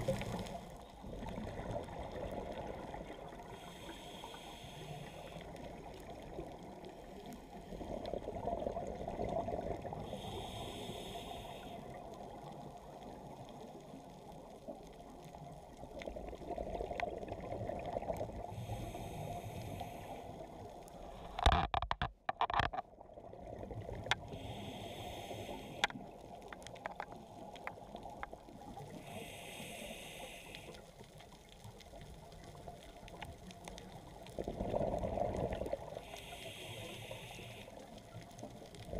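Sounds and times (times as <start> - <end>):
exhaled bubbles rumbling: 0.0 - 3.6, 7.6 - 10.1, 15.2 - 18.6, 31.7 - 36.1
scuba regulator inhale hiss: 3.4 - 5.6, 10.0 - 12.0, 18.5 - 20.5, 24.2 - 25.9, 28.8 - 30.9, 35.9 - 37.8.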